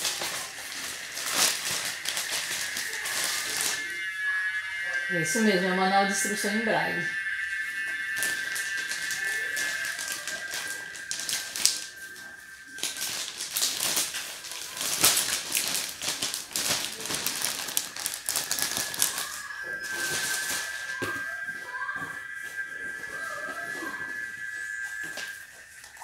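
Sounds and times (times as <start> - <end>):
plastic bag crinkling: 0.0 - 4.2, 7.3 - 21.2
steady high tone: 0.0 - 26.0.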